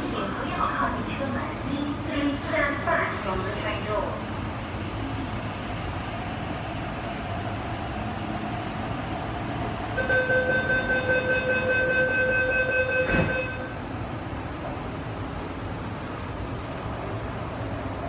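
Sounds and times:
train hum: 0:00.0 - 0:18.0
pulsing electronic warning beep: 0:09.9 - 0:14.0
sliding doors shutting: 0:13.0 - 0:13.5.

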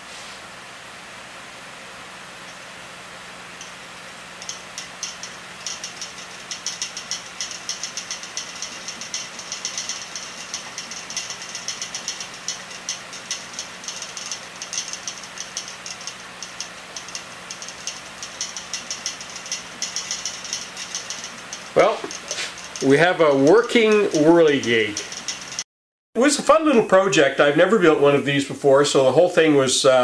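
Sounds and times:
electric fan rushing and humming: 0:00.0 - 0:25.6
propeller clicking and rattling: 0:03.6 - 0:25.7.

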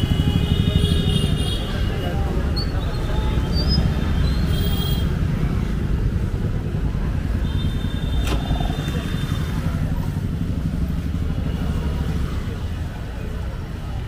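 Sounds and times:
people talking: 0:00.0 - 0:07.4, 0:08.2 - 0:14.0
road traffic rumble: 0:00.0 - 0:14.0.

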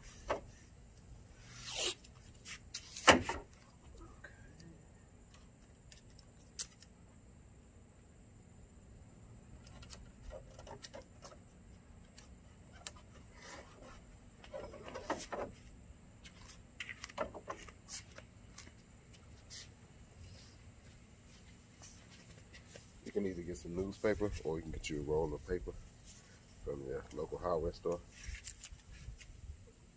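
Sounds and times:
faint background hum: 0:00.0 - 0:29.9
tape crackling and ripping: 0:01.6 - 0:03.1, 0:28.2 - 0:29.0.

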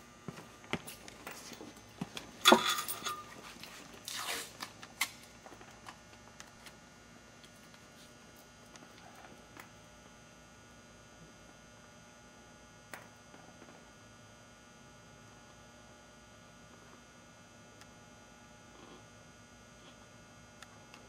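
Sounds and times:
masking tape ripping off roll: 0:04.0 - 0:05.3.

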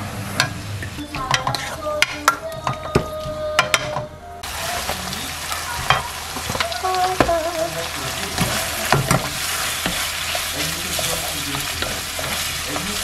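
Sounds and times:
pork and onions sizzling in a pan: 0:00.0 - 0:02.2, 0:04.4 - 0:13.0
wooden spatula scraping a pan: 0:01.2 - 0:02.1, 0:08.0 - 0:13.0.

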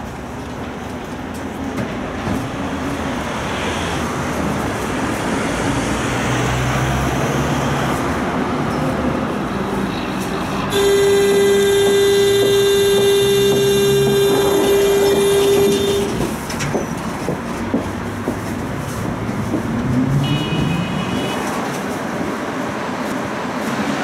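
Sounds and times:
tram rumble and motor hum: 0:00.0 - 0:03.4, 0:04.0 - 0:24.0
loud steady buzzer tone: 0:10.7 - 0:16.2.

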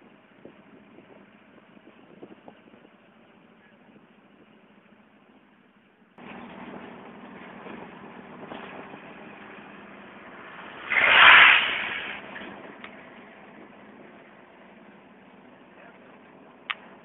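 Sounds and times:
road traffic noise: 0:00.0 - 0:17.0
loud rush: 0:08.9 - 0:13.5.

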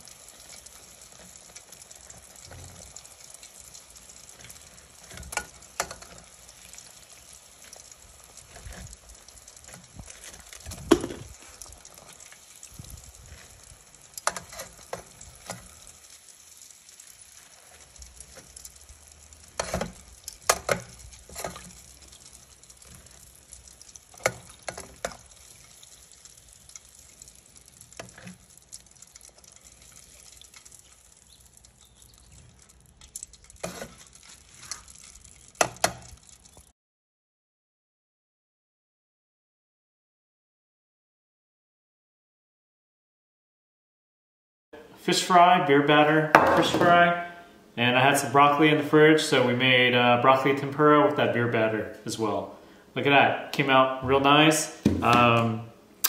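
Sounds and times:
food deep-frying in oil: 0:00.0 - 0:36.7.

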